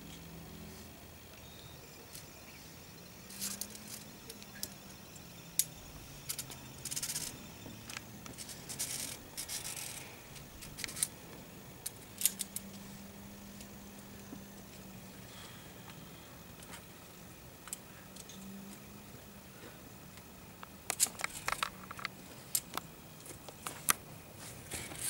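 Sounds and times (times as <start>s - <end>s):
metallic gear clicks and jangles: 5.6s - 7.5s.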